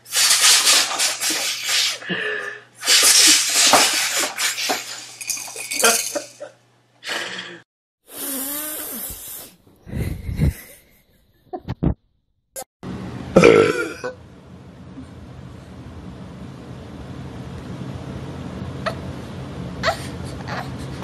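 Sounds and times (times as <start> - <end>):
man blowing his nose: 0.0 - 5.1, 8.0 - 10.7.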